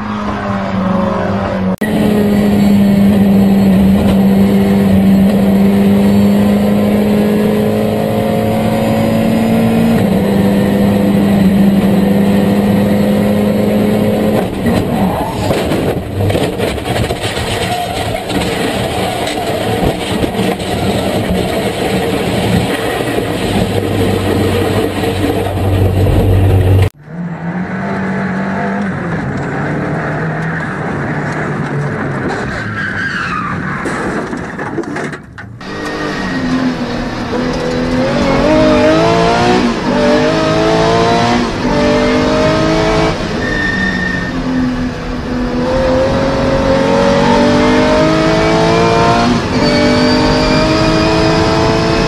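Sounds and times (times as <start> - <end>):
race car engine high note: 35.6 - 52.0.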